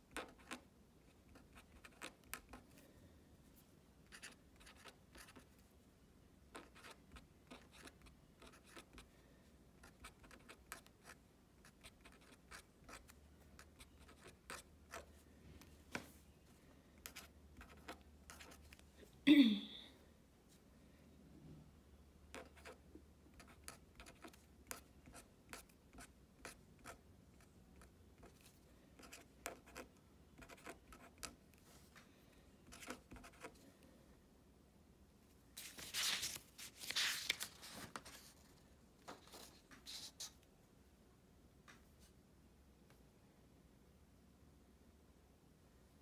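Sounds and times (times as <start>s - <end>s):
felt-tip pen scratching on paper: 0.1s - 2.6s, 4.1s - 5.5s, 6.5s - 9.1s, 9.8s - 15.1s
paper rustling: 35.6s - 40.4s.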